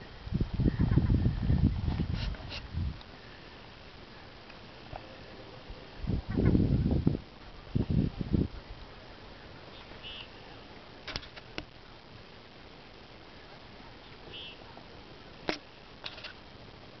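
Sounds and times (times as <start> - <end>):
wind: 0.0 - 17.0
high chirps: 9.7 - 10.4
sharp clicks and knocks: 11.0 - 11.7.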